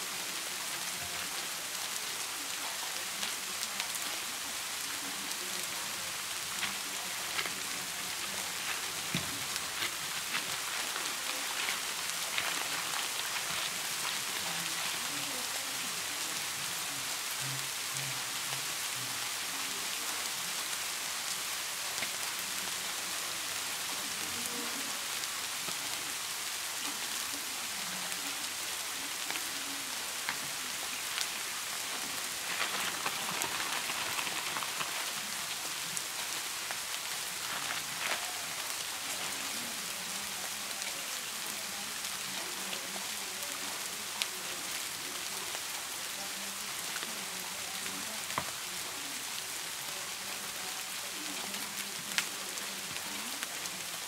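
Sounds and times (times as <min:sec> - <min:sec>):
steady rain-like hiss: 0:00.0 - 0:54.0
plastic mailer crinkling: 0:32.4 - 0:35.4.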